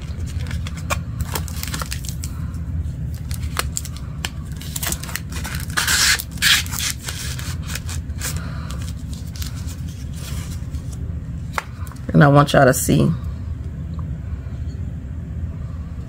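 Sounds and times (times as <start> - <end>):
paper wrapper crinkling: 0.0 - 12.1.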